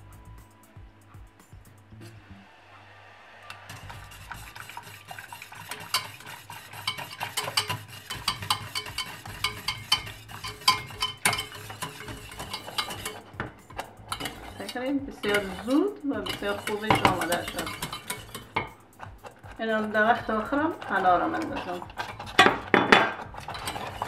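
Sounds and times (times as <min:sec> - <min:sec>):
whisk clinking in metal pot: 0:03.7 - 0:24.0.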